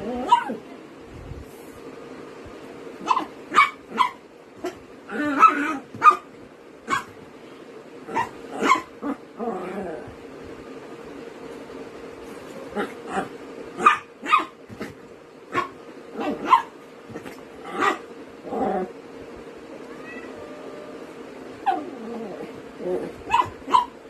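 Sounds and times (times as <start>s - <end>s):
small dog yipping and barking: 0.2s - 0.6s, 3.0s - 6.3s, 6.9s - 7.1s, 8.1s - 8.9s, 13.8s - 14.6s, 15.5s - 16.7s, 23.2s - 24.0s.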